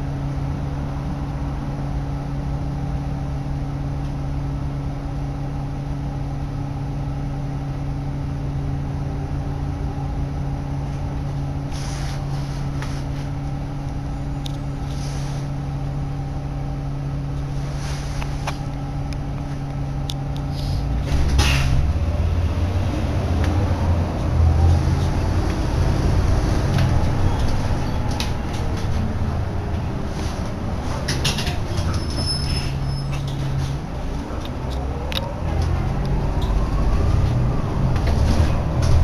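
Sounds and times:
bus diesel engine idling: 0.0s - 39.0s
brief hisses and clicks: 20.5s - 20.8s.

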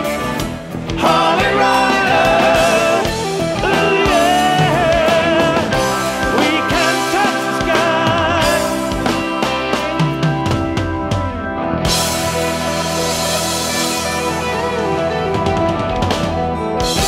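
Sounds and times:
rock music with electric guitar: 0.0s - 17.0s
person singing: 0.9s - 9.2s.

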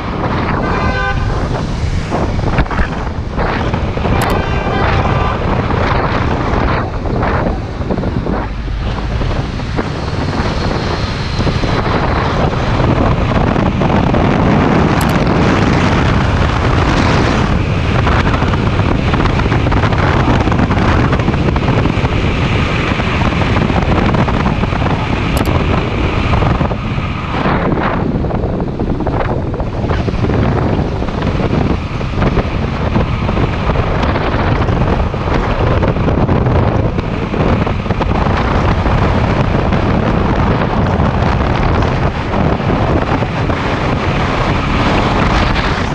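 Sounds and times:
wind rushing over microphone: 0.0s - 45.9s.

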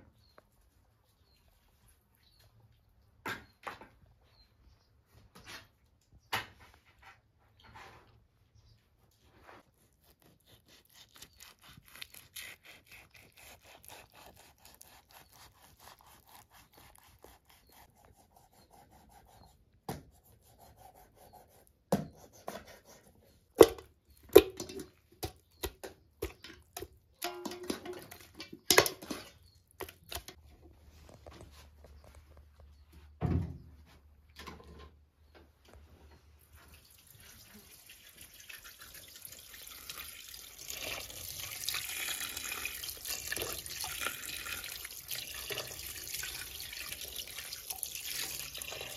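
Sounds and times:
knife cutting meat on metal tray: 9.6s - 19.5s
meat clanking into metal pot: 23.6s - 30.4s
water pouring into pot: 36.7s - 48.9s.

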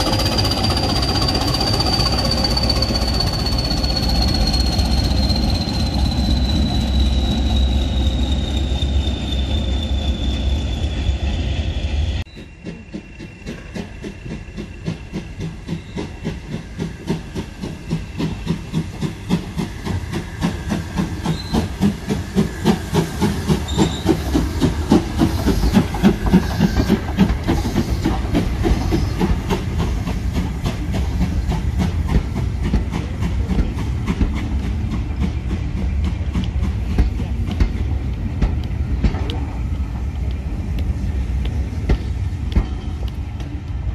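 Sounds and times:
steam locomotive chuffing: 0.0s - 43.9s
train carriages rumbling: 0.0s - 43.9s
steam hissing: 12.3s - 43.2s.

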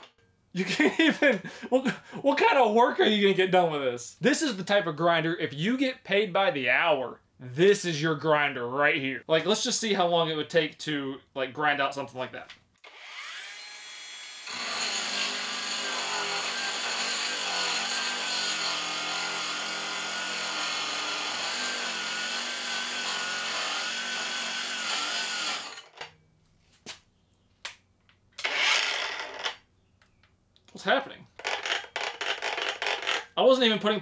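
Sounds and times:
angle grinder grinding steel: 12.9s - 26.1s, 28.4s - 29.6s.

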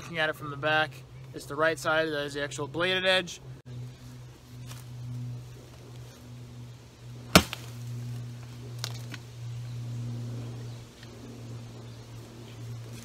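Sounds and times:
steady low hum: 0.0s - 13.0s
shovel blade chopping log: 7.3s - 7.8s.

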